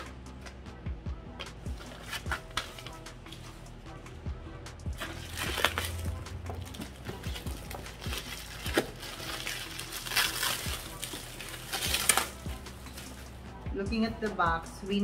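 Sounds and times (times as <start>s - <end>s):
plastic wrapping crinkling: 5.0s - 13.4s.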